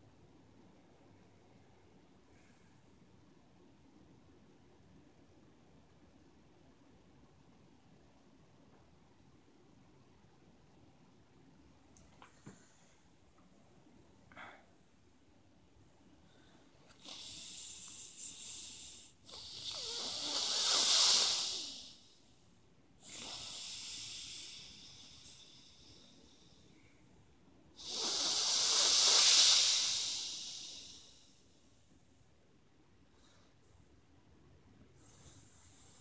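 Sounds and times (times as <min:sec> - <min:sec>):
man breathing with hiss: 0:16.2 - 0:32.0, 0:35.0 - 0:36.0.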